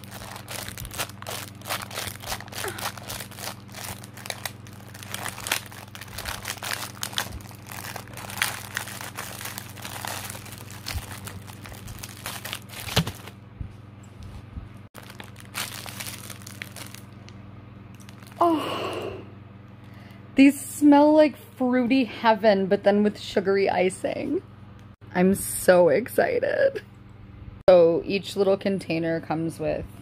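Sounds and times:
plastic tray crinkling: 0:00.0 - 0:13.4, 0:15.0 - 0:17.1.

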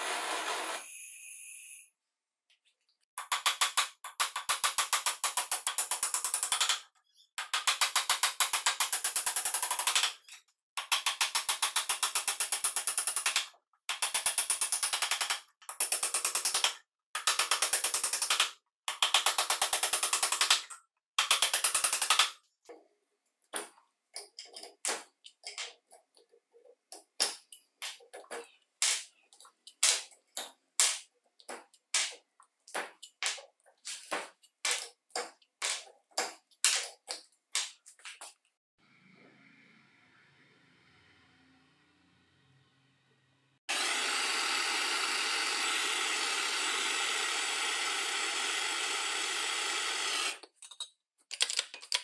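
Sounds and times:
irregular clicks and crackles: 0:50.2 - 0:52.0.

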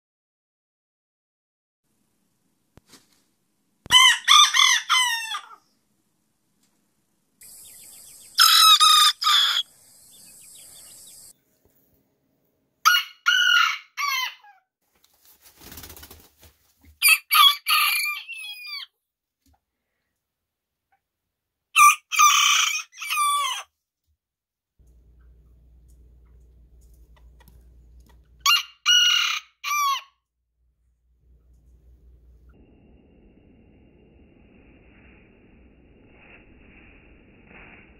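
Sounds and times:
roosters crowing: 0:03.9 - 0:05.6, 0:07.4 - 0:09.7, 0:12.9 - 0:14.6, 0:17.0 - 0:18.9, 0:21.8 - 0:23.7, 0:28.4 - 0:30.1.

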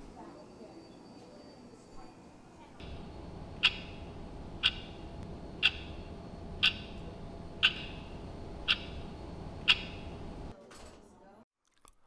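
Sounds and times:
low room hum: 0:02.8 - 0:10.5
wall clock ticking: 0:02.8 - 0:10.5.

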